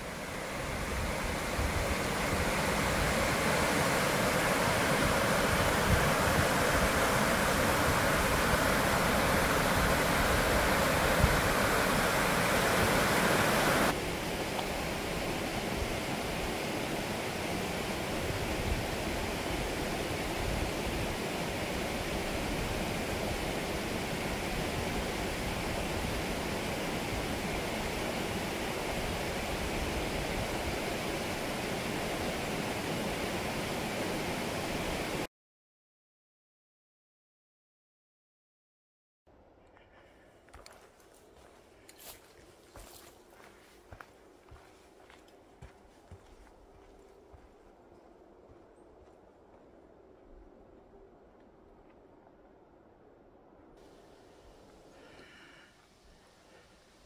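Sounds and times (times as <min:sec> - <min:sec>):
river rapids rushing over rocks: 0:00.0 - 0:35.2.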